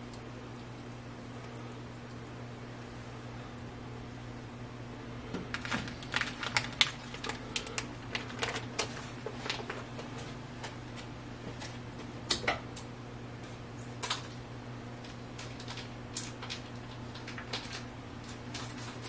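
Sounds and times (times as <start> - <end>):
steady low hum: 0.0 - 19.0
plastic bag crinkling: 5.5 - 9.9, 15.0 - 19.0.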